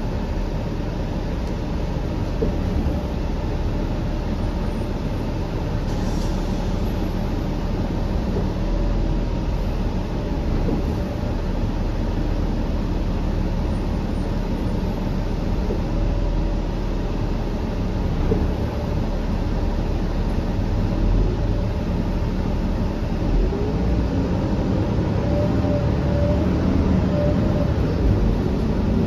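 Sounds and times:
bus diesel engine drone: 0:00.0 - 0:29.0.

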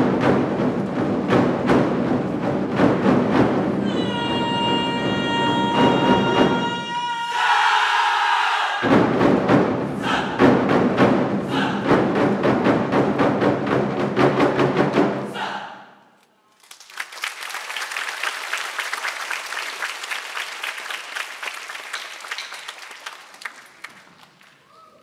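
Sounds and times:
ensemble of drums beaten loudly: 0:00.0 - 0:15.6
audience applause: 0:16.6 - 0:25.0.

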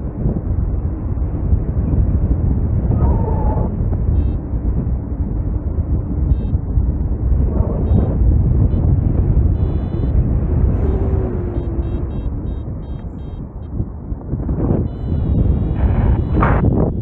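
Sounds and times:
wind rushing over microphone: 0:00.0 - 0:17.0
short high beeps: 0:10.8 - 0:13.4, 0:14.9 - 0:16.6.

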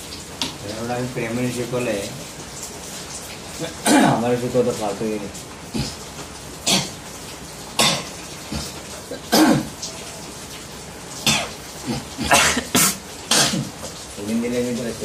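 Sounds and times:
harsh cough-like bursts: 0:03.8 - 0:04.2, 0:06.6 - 0:07.0, 0:07.8 - 0:09.8, 0:11.2 - 0:13.8.

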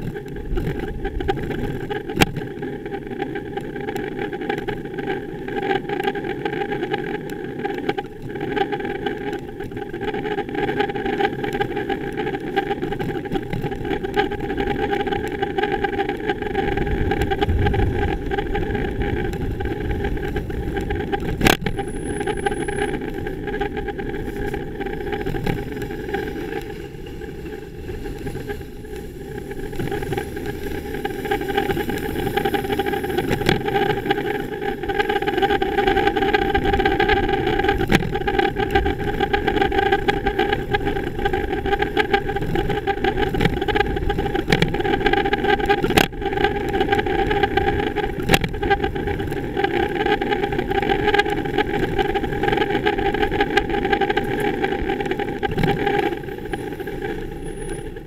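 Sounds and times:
road traffic engine hum: 0:09.9 - 0:58.0.

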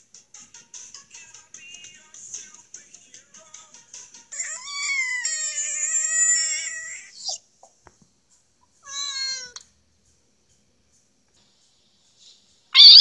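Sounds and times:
frog distress scream: 0:04.4 - 0:07.4, 0:12.8 - 0:13.0.

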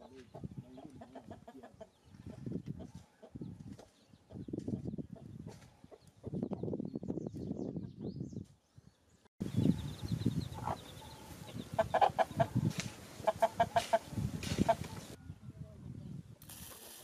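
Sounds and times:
chickens clucking: 0:00.0 - 0:06.7, 0:09.4 - 0:15.2.

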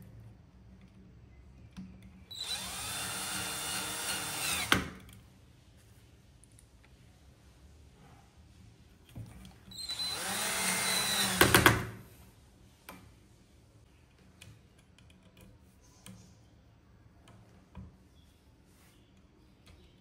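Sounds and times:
cordless drill motor whine: 0:02.3 - 0:04.9, 0:09.7 - 0:11.6.

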